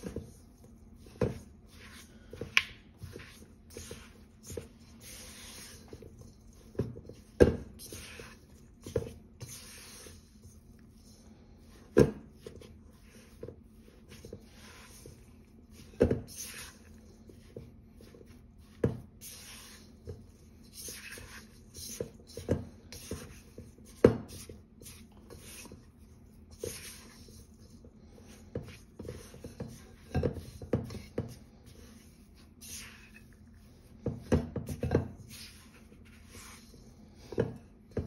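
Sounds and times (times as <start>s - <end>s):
spatula scraping dough in bowl: 0.0s - 38.0s.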